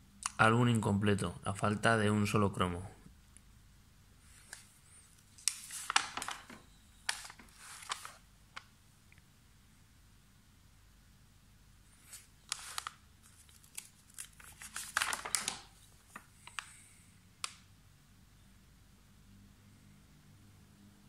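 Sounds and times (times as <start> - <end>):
stiff paper pages turning: 4.3 - 8.7, 12.0 - 17.6
sharp paper ticks: 4.5 - 8.7, 12.1 - 16.8.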